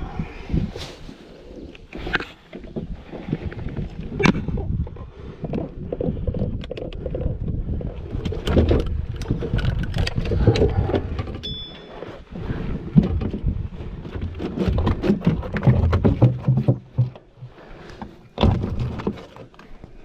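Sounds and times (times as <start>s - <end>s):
wind buffeting microphone: 0.0s - 11.6s, 12.2s - 16.2s
knocks and clunks of gear: 5.4s - 12.1s, 12.9s - 20.0s.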